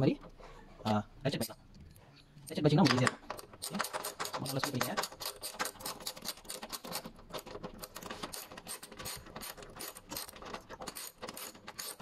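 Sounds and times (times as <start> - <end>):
ratchet wrench clicking: 7.8 - 12.0.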